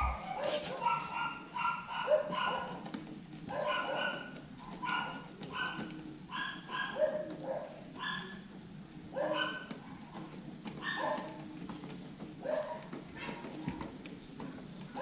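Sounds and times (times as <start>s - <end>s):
dog barking: 0.0s - 2.9s, 3.5s - 8.4s, 9.1s - 10.0s, 10.8s - 11.4s, 12.4s - 12.9s.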